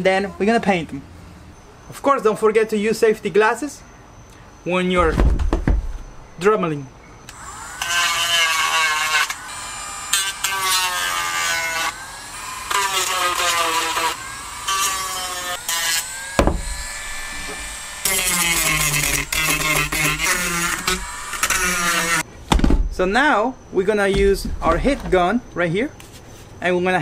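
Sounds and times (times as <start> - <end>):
rotary tool grinding pipe: 7.3 - 22.3.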